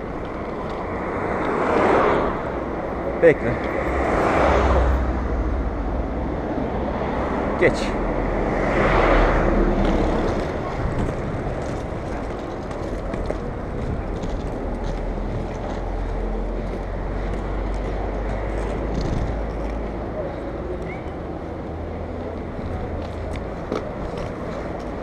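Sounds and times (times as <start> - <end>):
skate wheels rolling on pavement: 0.0 - 2.6, 8.5 - 20.4, 21.4 - 25.0
car passing close: 0.0 - 25.0
wind buffeting microphone: 8.9 - 16.0, 18.7 - 19.7.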